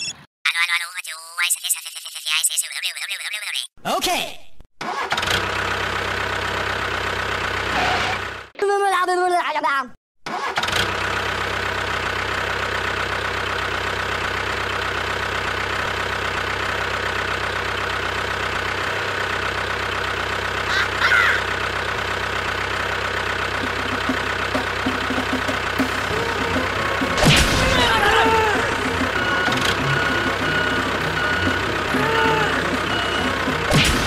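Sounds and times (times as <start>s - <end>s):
tractor engine idling: 5.6s - 8.4s, 11.1s - 34.0s.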